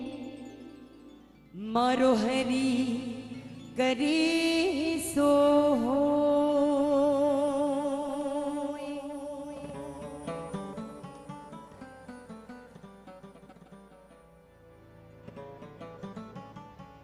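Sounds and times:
woman singing: 0:00.0 - 0:11.1
plucked string notes: 0:00.0 - 0:17.0.

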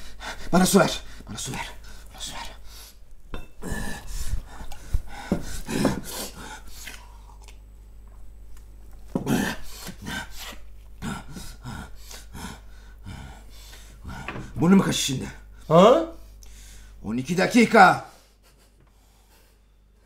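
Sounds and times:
man breathing hard: 0:03.6 - 0:07.2, 0:09.2 - 0:14.6, 0:15.4 - 0:17.0, 0:18.1 - 0:20.0.

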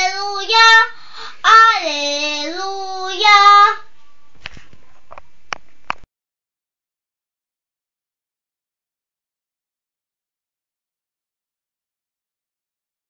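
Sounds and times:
girl singing unaccompanied: 0:00.0 - 0:04.0.

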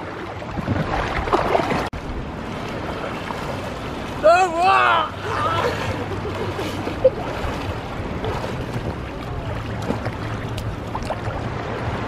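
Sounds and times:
wind noise on microphone: 0:00.0 - 0:04.0
sea water splashing: 0:00.0 - 0:12.0.

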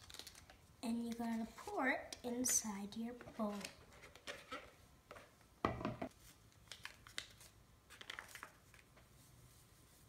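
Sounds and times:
paper packet crinkling: 0:00.0 - 0:00.5, 0:06.6 - 0:09.0.

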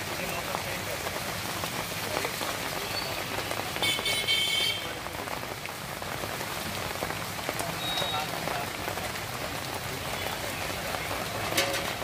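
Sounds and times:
rain falling on a street: 0:00.0 - 0:12.0
vehicle horn: 0:03.8 - 0:05.0.

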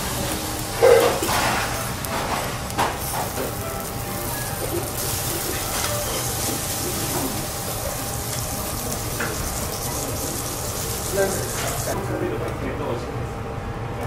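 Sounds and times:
griddle sizzling: 0:00.0 - 0:12.2
spatula scraping griddle: 0:00.8 - 0:12.0.

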